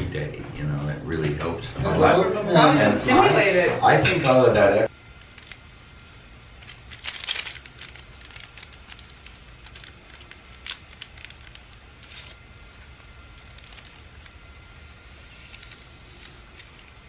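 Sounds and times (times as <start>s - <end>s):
paper packet crinkling and tearing: 5.2s - 17.0s
paper rustling: 5.2s - 17.0s.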